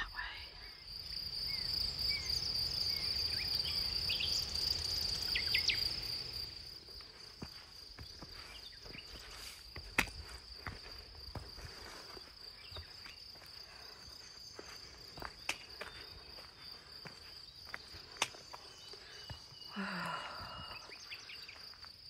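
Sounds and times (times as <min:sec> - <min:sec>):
insects droning: 0:00.0 - 0:22.0
footsteps on rocky dirt trail: 0:06.2 - 0:22.0
breathy sound: 0:18.9 - 0:21.6.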